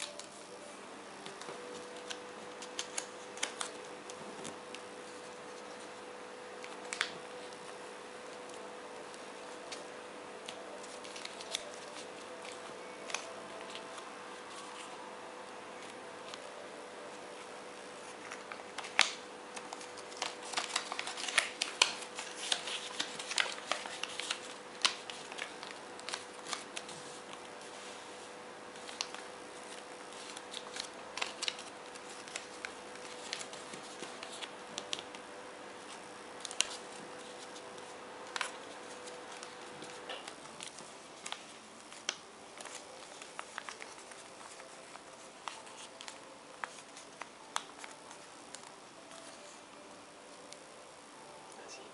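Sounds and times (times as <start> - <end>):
faint steady hum: 0.0 - 51.9
paper rustling and creasing: 8.5 - 15.0, 15.8 - 35.2, 35.8 - 50.5.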